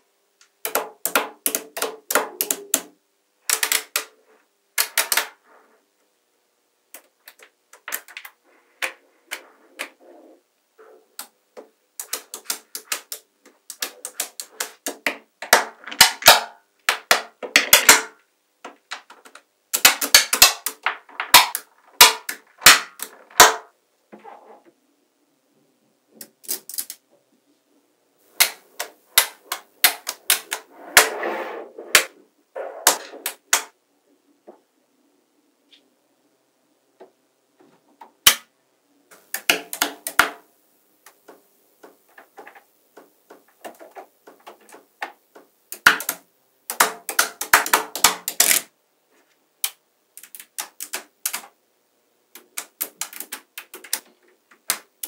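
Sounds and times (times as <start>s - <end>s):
magnetic metal balls clicking: 12.0s - 15.2s, 28.4s - 30.6s, 43.4s - 48.7s, 49.6s - 51.5s, 52.3s - 55.0s.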